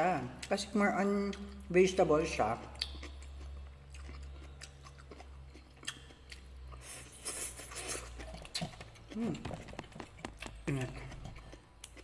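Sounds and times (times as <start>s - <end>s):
person chewing and crunching: 2.6s - 12.0s.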